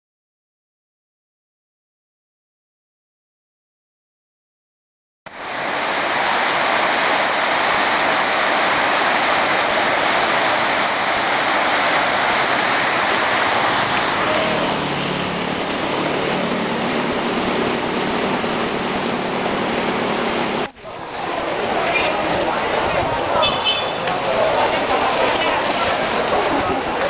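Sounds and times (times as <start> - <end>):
floodwater rushing down drain: 5.3 - 27.0.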